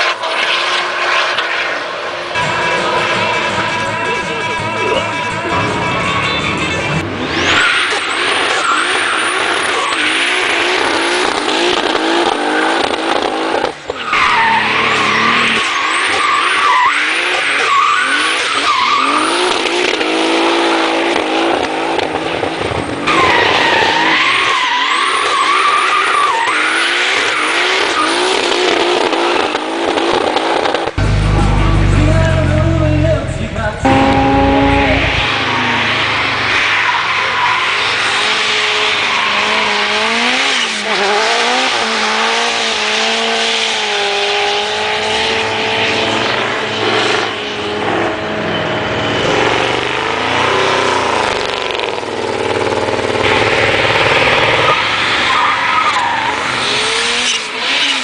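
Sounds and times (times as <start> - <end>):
car engine revving: 0.0 - 58.0
tyres squealing on wet tarmac: 7.3 - 11.2, 13.9 - 19.5, 23.0 - 28.3, 34.0 - 40.9, 52.8 - 58.0.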